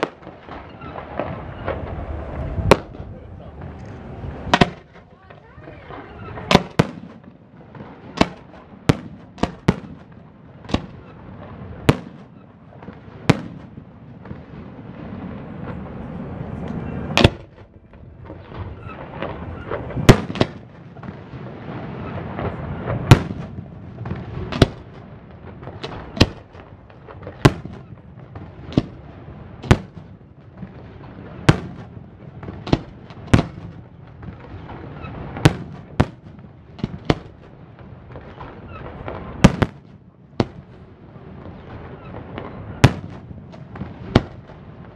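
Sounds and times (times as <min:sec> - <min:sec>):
fireworks bursting with sharp bangs: 0:00.0 - 0:44.9
low rumble: 0:00.4 - 0:06.5.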